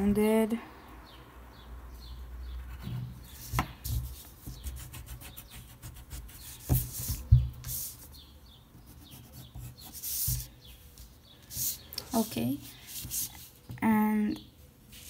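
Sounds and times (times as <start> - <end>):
pencil scratching on paper: 2.6 - 8.1, 8.7 - 10.5, 11.5 - 13.6.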